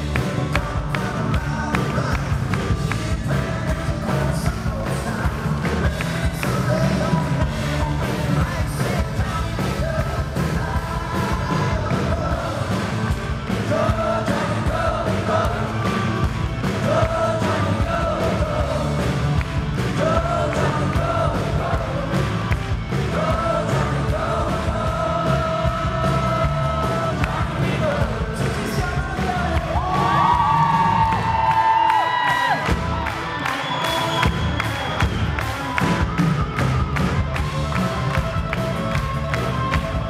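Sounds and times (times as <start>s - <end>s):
man singing: 0.0s - 19.2s, 19.8s - 31.3s
rock band playing: 0.0s - 40.0s.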